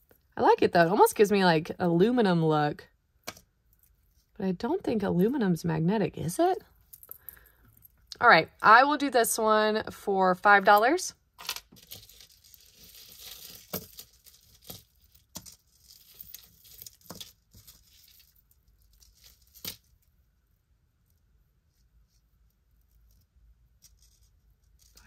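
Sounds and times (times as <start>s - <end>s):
jewelry rustling and crinkling: 3.4s - 4.4s, 10.7s - 25.0s.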